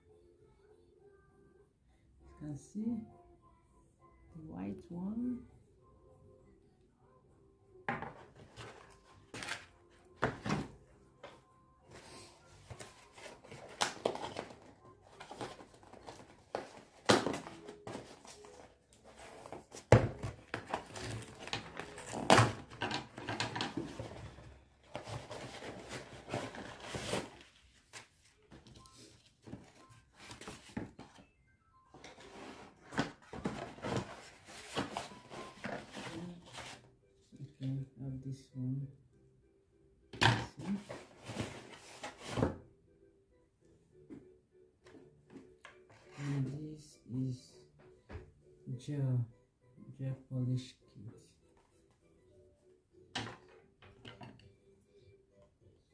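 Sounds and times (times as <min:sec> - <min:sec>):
packaging rustling and crinkling: 0:12.6 - 0:31.2.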